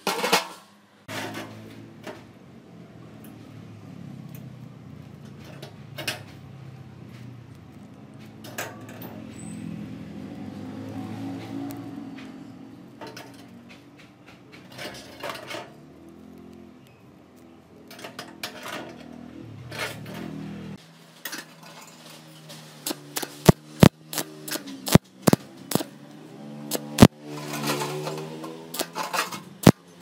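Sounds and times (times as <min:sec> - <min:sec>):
metal mesh clinking and scraping: 0:08.0 - 0:09.6, 0:12.9 - 0:15.9, 0:17.8 - 0:26.0, 0:26.7 - 0:30.0
loud sharp clicks: 0:22.8 - 0:27.1, 0:28.7 - 0:29.0.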